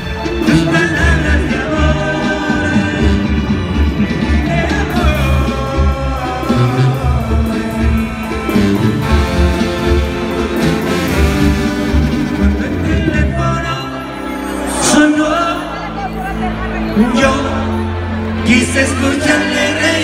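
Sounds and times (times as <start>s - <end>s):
brass melody: 0.0s - 20.0s.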